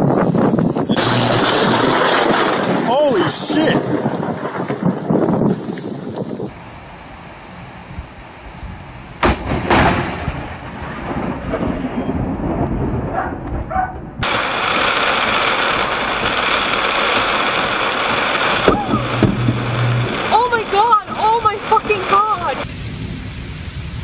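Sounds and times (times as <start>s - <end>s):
thunder cracks and rumbling: 0.0s - 6.0s, 9.2s - 22.7s
heavy rain: 0.0s - 7.6s, 9.5s - 13.1s, 14.2s - 24.0s.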